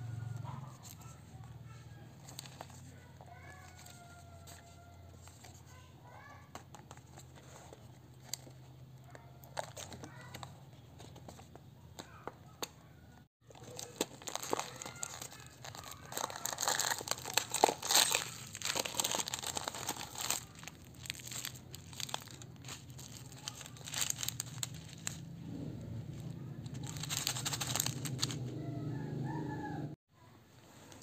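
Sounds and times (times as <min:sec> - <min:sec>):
snack packaging crinkling: 0:13.4 - 0:25.3, 0:26.1 - 0:28.5.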